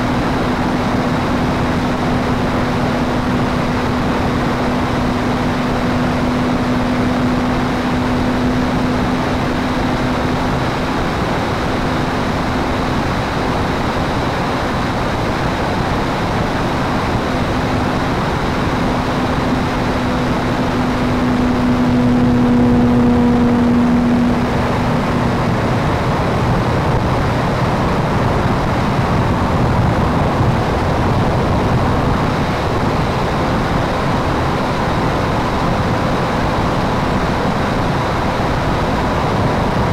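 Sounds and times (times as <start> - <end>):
wind noise on camera: 0.0 - 39.9
model plane motor humming: 17.1 - 27.0.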